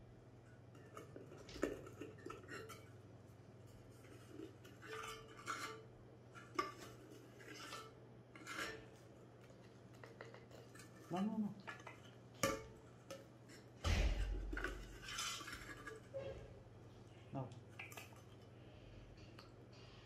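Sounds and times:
scoop scraping inside a tin: 3.7 - 9.1, 13.6 - 16.5.

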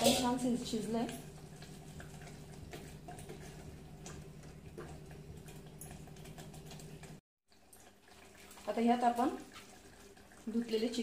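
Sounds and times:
low steady hum: 0.0 - 8.7.

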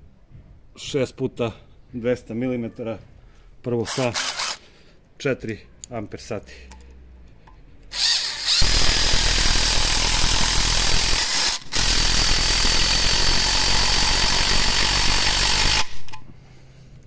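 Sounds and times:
impact driver hammering screw: 3.9 - 4.6, 8.0 - 16.2.

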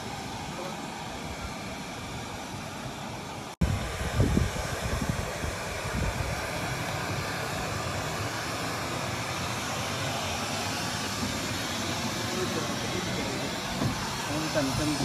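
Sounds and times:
steady rushing outdoor noise: 0.0 - 15.0.

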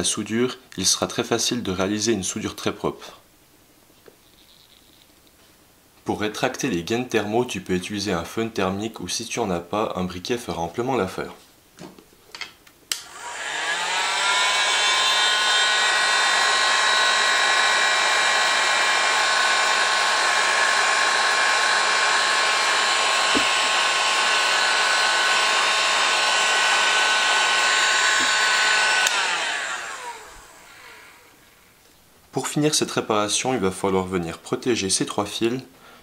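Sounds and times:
heat gun switch click: 12.9 - 13.1, 29.0 - 29.2
heat gun blowing air: 12.9 - 31.4.

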